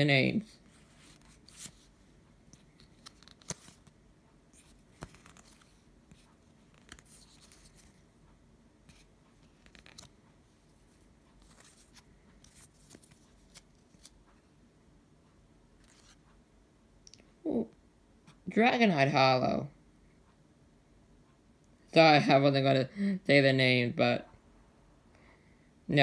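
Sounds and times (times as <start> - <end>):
trading cards sliding: 2.5 - 3.9, 4.5 - 8.0.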